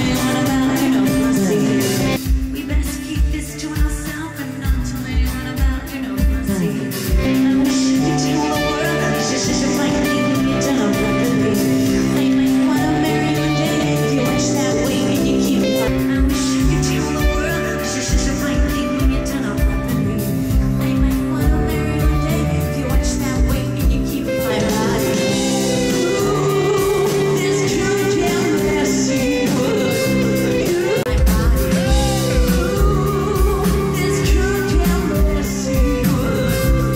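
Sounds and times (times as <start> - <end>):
bass guitar: 0.0 - 36.9
drums: 0.0 - 36.9
electric guitar: 0.0 - 36.9
live rock band: 0.0 - 36.9
woman singing: 0.0 - 36.9.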